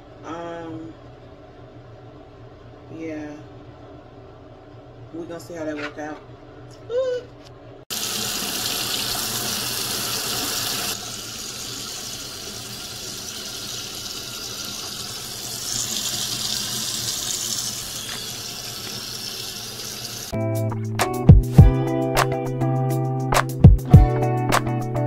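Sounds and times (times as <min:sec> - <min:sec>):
faucet running into a sink: 0:07.9 - 0:20.4.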